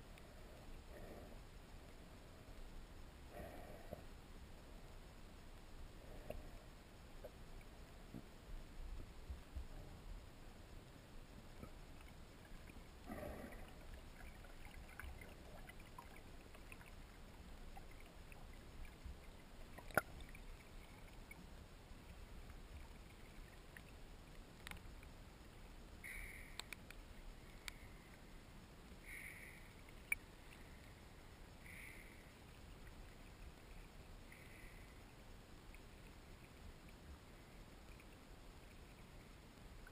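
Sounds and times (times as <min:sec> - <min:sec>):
sharp clicks: 0:26.1 - 0:27.0.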